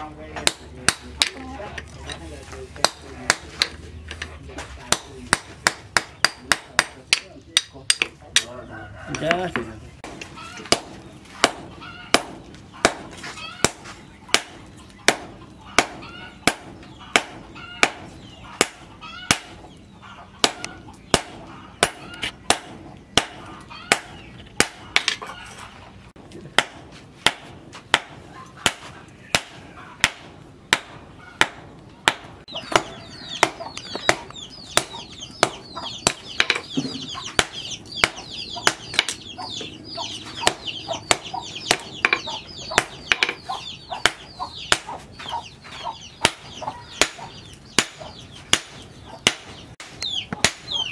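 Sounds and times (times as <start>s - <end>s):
chickens clucking: 6.4s - 27.1s, 27.8s - 50.9s
hammer striking steel on anvil: 20.4s - 25.2s.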